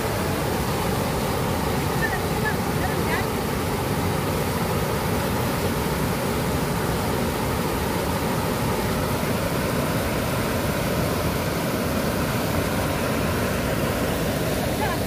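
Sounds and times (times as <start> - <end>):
water rushing over weir: 0.0 - 15.0.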